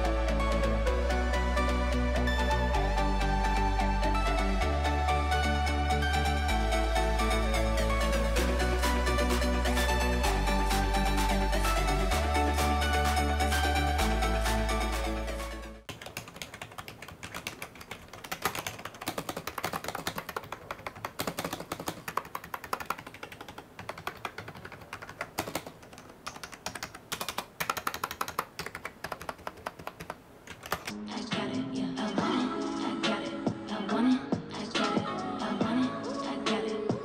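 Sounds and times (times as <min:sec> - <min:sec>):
electronic music: 0:00.0 - 0:15.9.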